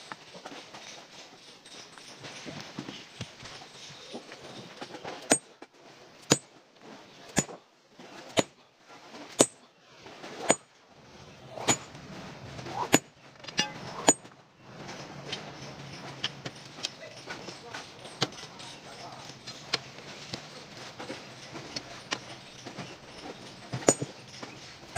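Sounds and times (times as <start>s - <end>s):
sledgehammer striking steel wedges: 5.3s - 5.5s, 6.2s - 6.5s, 9.3s - 9.6s, 11.5s - 12.0s, 12.6s - 14.3s, 23.2s - 24.9s.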